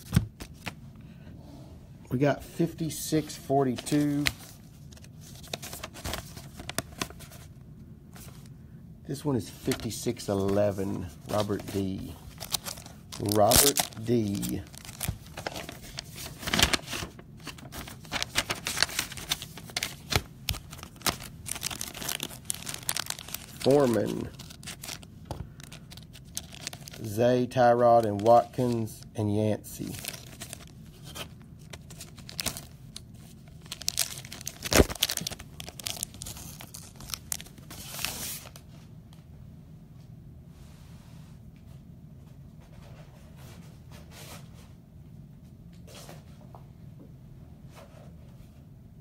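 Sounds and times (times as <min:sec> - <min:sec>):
plastic card sleeves clicking and crinkling: 0:11.2 - 0:27.0, 0:29.8 - 0:32.8, 0:33.5 - 0:38.6.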